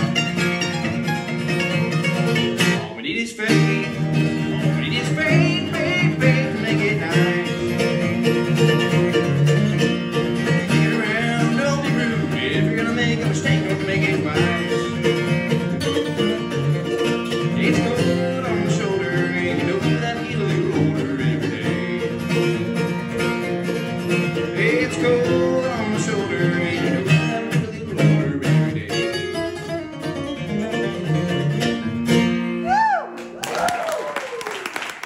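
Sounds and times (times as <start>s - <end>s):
mandolin: 0.0s - 32.6s
acoustic guitar: 0.0s - 33.4s
applause: 33.2s - 35.0s.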